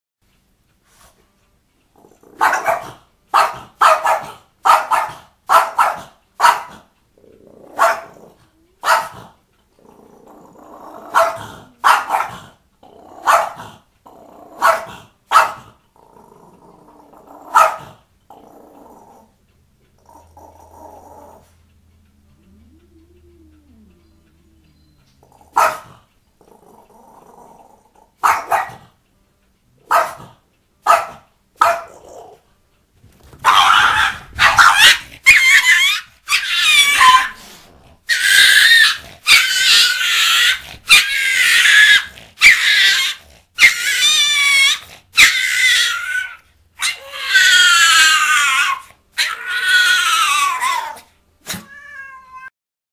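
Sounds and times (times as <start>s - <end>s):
dogs growling and snarling: 1.9s - 3.8s, 6.7s - 29.0s, 31.6s - 51.7s
dogs barking: 2.2s - 6.9s, 7.7s - 8.2s, 8.8s - 9.4s, 10.9s - 12.6s, 13.2s - 13.8s, 14.6s - 15.8s, 17.4s - 18.0s, 25.2s - 26.1s, 28.2s - 29.0s, 29.8s - 32.0s, 33.4s - 37.4s, 38.1s - 51.0s.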